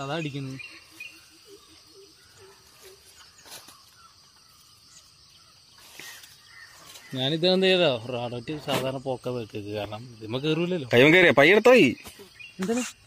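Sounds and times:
high insect hum: 0:00.0 - 0:13.0
faint rustles: 0:00.6 - 0:05.1, 0:05.7 - 0:07.2.

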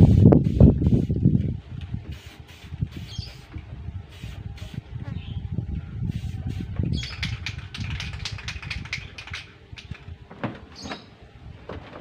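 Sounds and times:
clicks and rattles of handling: 0:07.0 - 0:11.0
short squeaks: 0:10.7 - 0:11.2.

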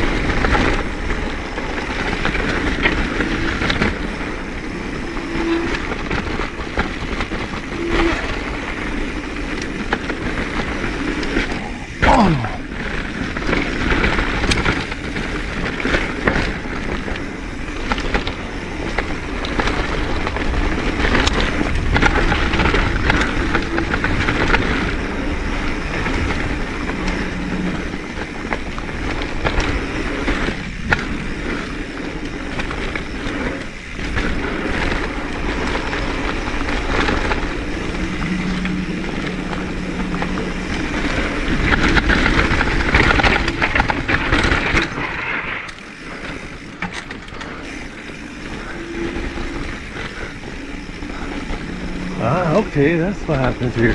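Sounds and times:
small clicks and rattles: 0:00.0 - 0:12.0, 0:12.7 - 0:53.9
bike tyres on dirt and gravel: 0:00.0 - 0:53.9
low rumble: 0:34.4 - 0:53.9.

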